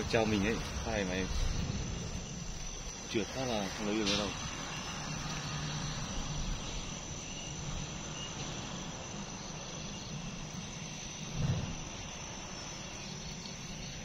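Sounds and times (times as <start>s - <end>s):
crickets chirring: 0.0s - 14.0s
steady hiss: 0.0s - 14.0s
low thump: 11.3s - 12.0s.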